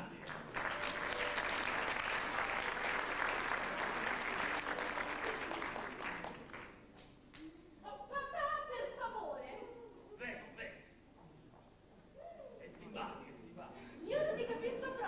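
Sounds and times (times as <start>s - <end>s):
theatre audience applauding: 0.0s - 6.9s.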